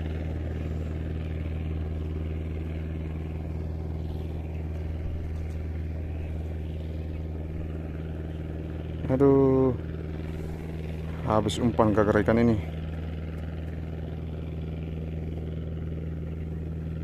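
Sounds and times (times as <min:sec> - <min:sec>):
low engine drone: 0:00.0 - 0:17.0.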